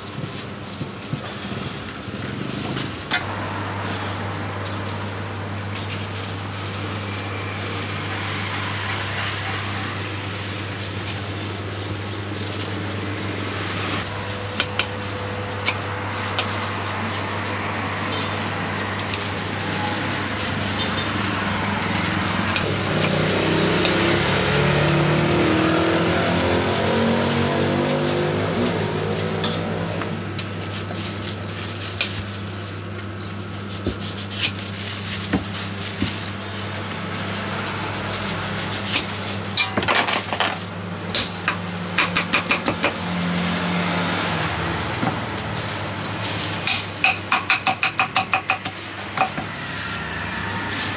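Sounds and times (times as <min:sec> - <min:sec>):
street traffic: 0:00.0 - 0:50.9
vehicle engine passing: 0:01.4 - 0:31.8, 0:42.9 - 0:46.7, 0:48.9 - 0:50.9.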